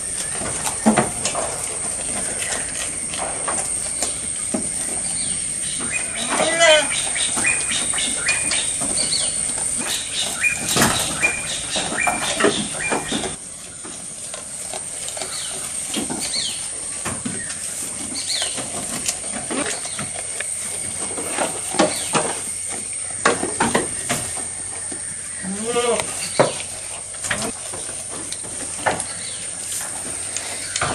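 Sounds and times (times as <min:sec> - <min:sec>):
goats chewing leafy fodder: 0:00.0 - 0:30.9
grass pile rustling: 0:26.1 - 0:30.9.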